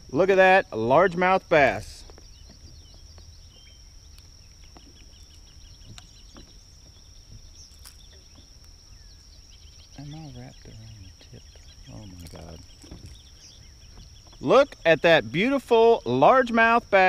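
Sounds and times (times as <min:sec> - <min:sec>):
faint chirps: 0:00.0 - 0:17.0.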